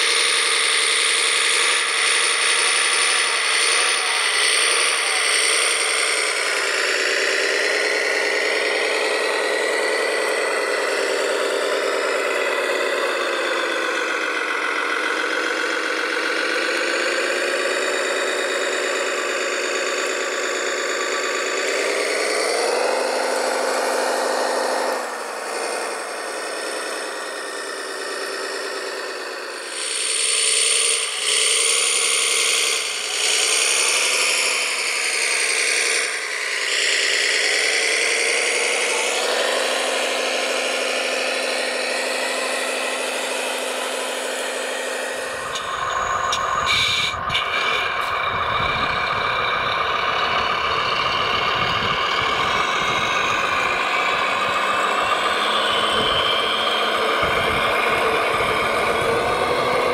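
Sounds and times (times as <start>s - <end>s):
model dumper motor drone: 0.0s - 59.9s.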